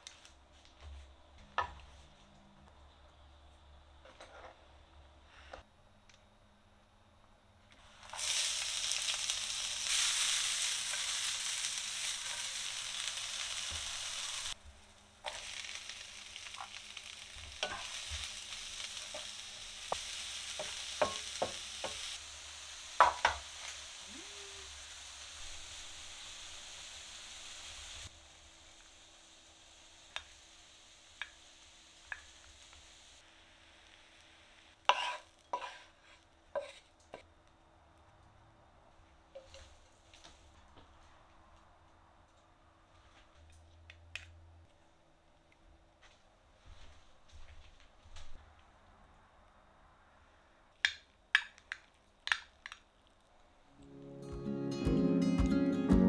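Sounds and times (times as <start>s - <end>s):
vegetables sizzling in a frying pan: 7.8s - 36.8s.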